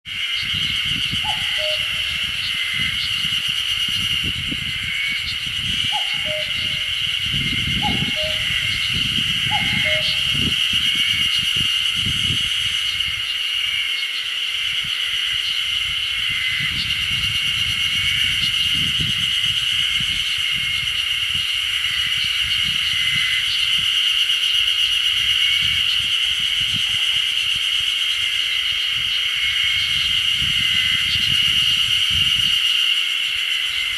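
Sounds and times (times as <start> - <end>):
cicadas droning: 0.1 - 33.9
cuckoo calling: 1.2 - 2.4, 5.9 - 6.9, 7.8 - 10.6.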